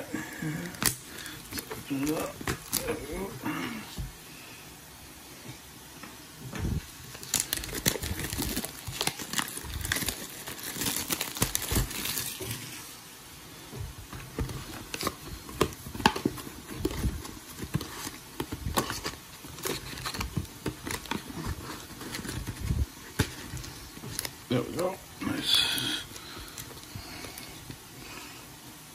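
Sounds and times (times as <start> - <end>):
shrink wrap crinkling and tearing: 0.3 - 3.3, 7.0 - 12.9, 14.3 - 27.8.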